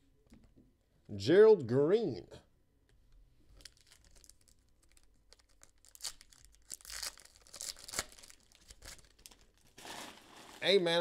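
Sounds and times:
foil wrapper crinkling and ripping: 3.6 - 11.0.

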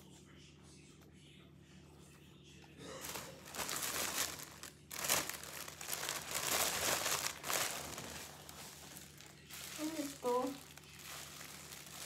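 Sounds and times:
plastic packaging crinkling: 3.0 - 12.0.

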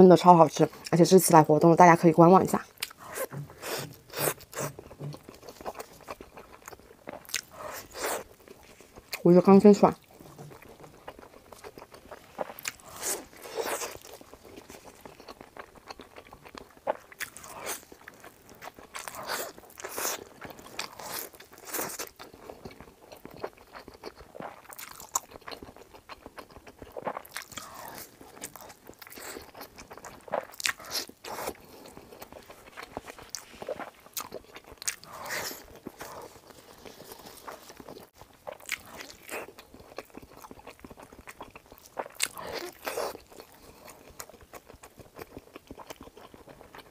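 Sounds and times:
wet biting and chewing: 10.0 - 46.9.

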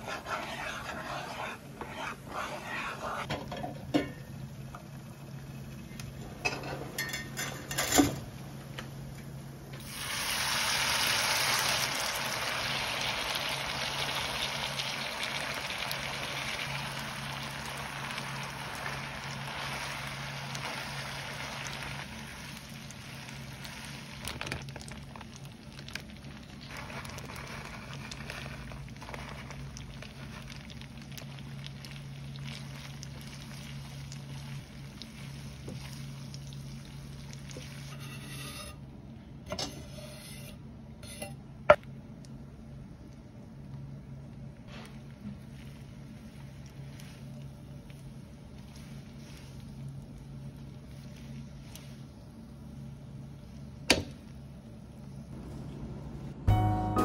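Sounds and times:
pasta sizzling in frying pan: 9.8 - 38.7
low hum: 40.6 - 57.0.

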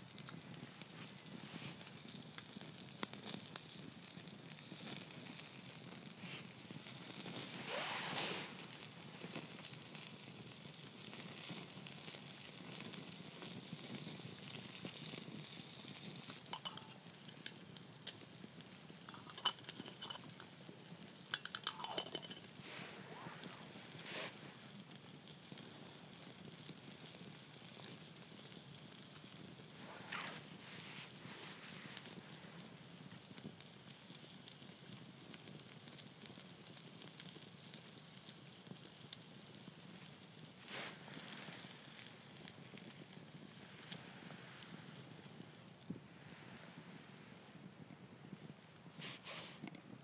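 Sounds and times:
bacon sizzling on a grill: 0.0 - 47.0
campfire crackling: 0.0 - 50.0
metal grill clinks: 16.5 - 17.8, 19.1 - 20.6, 21.3 - 22.5.

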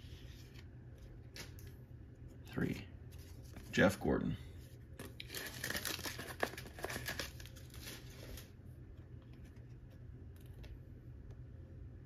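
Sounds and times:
plastic packaging crinkling: 5.0 - 8.5.

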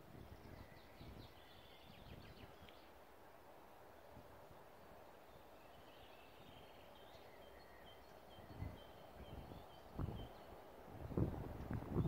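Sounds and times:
faint bird chirps: 0.1 - 3.0, 5.0 - 11.4.

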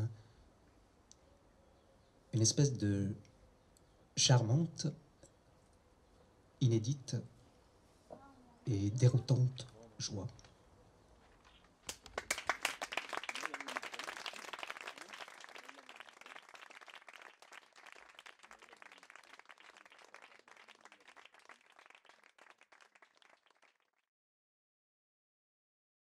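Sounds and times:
audience applauding: 11.9 - 24.0.

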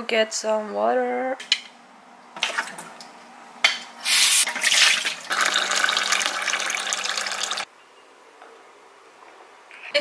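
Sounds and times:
water splashing into metal sink: 4.4 - 7.7
tap water running into mug: 4.5 - 7.7.

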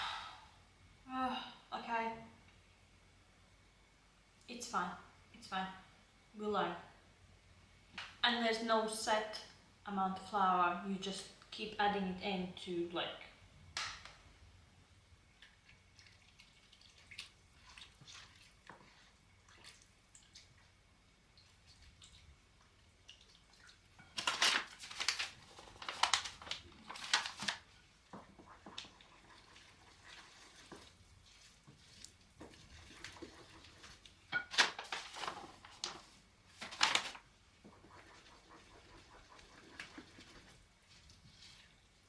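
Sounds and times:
flour stirred into dough: 26.8 - 36.8, 37.6 - 42.0.

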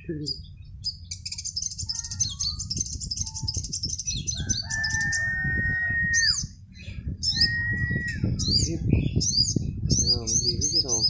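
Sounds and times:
birds chattering: 0.0 - 11.0
rooster crowing: 4.3 - 6.4.

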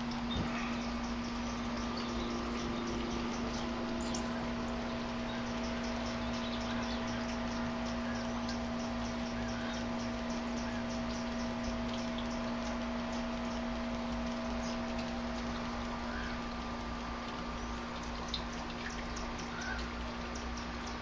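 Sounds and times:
hummingbirds chipping: 0.0 - 21.0
steady low hum: 0.0 - 21.0.

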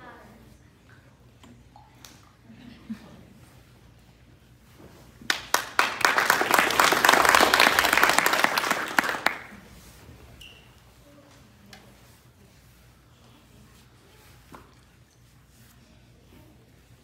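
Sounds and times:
people clapping: 5.2 - 9.6.

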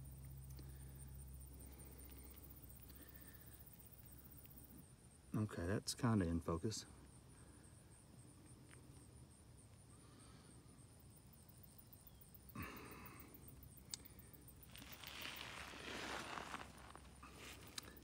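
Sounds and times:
faint insect chirping: 0.0 - 18.0
handling rustle: 14.7 - 18.0.

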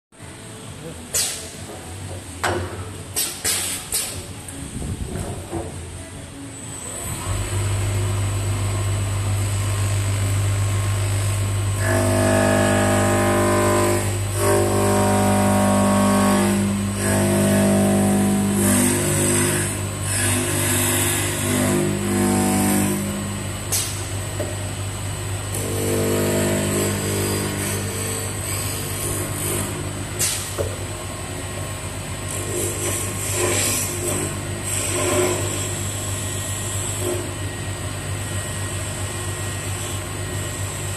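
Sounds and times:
lathe motor hum and whine: 5.9 - 40.9
cutter buzzing into wood: 11.8 - 23.2, 25.5 - 29.8.

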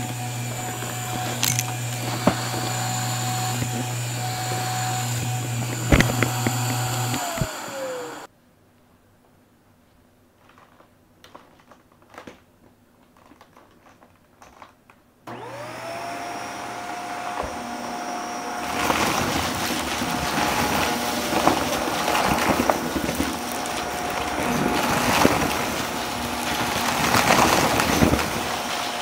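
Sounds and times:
vacuum cleaner motor whining: 0.0 - 8.3, 15.3 - 29.0
vacuum crunching debris: 0.0 - 8.3, 15.3 - 29.0.

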